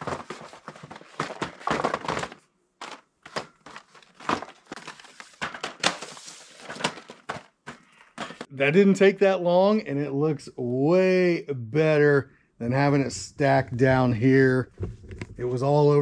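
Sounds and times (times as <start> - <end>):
packaging crinkling: 0.0 - 7.9.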